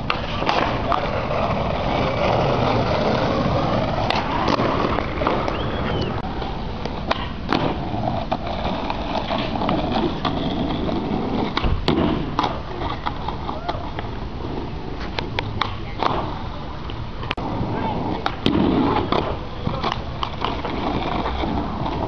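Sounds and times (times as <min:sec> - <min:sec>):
skateboard clacking on ground: 0:00.0 - 0:22.0
skateboard wheels rolling on concrete: 0:00.0 - 0:22.0.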